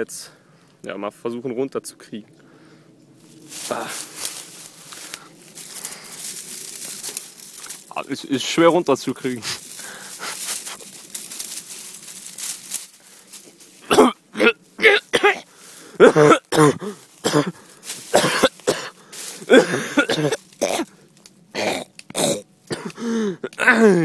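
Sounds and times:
man coughing and gagging: 0:13.8 - 0:20.9, 0:21.6 - 0:24.0.

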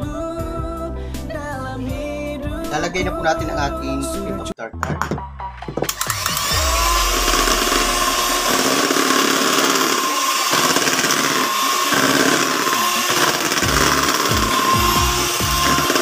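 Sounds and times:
electric hand mixer whining: 0:05.9 - 0:16.0.

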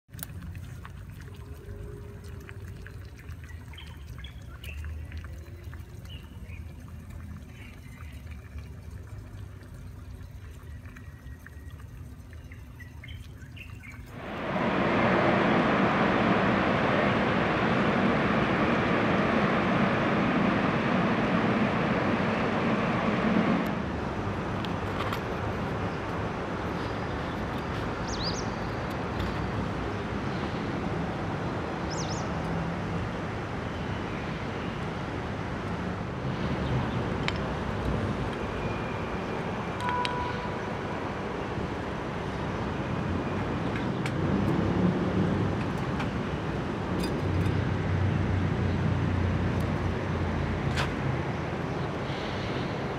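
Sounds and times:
distant road traffic: 0:00.1 - 0:52.9.

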